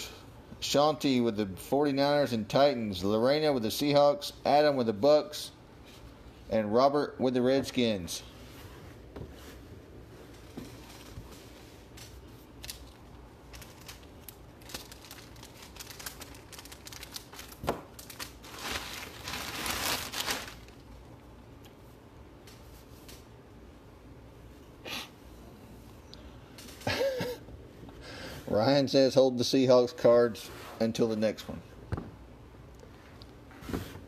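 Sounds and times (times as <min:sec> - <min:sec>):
packaging crinkling and rustling: 0:12.5 - 0:21.2.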